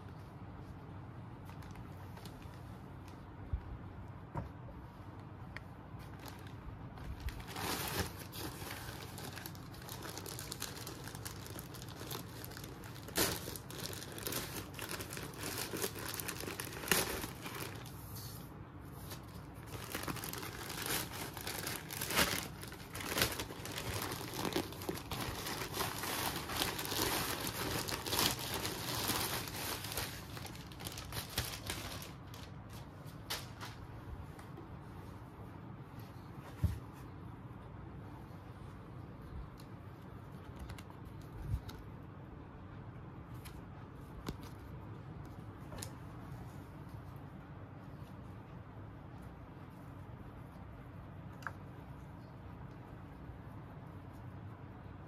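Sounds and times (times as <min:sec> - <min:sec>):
plastic mailer bag crinkling and tearing: 0:06.0 - 0:18.0, 0:19.1 - 0:33.8.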